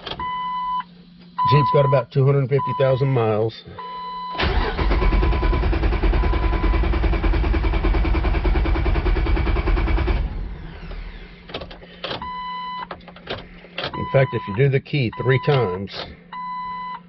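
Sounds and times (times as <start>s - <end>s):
starter motor cranking: 4.4s - 12.3s
short beep: 15.2s - 17.0s.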